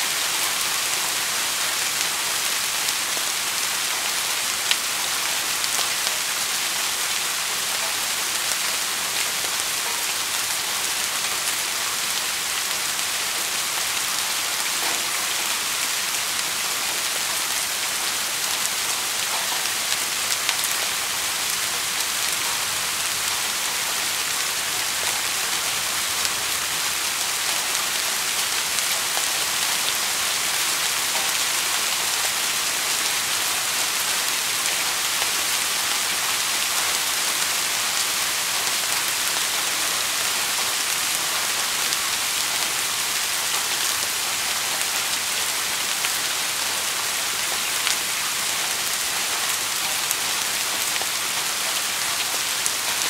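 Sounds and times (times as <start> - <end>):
steady rain: 0.0 - 53.0.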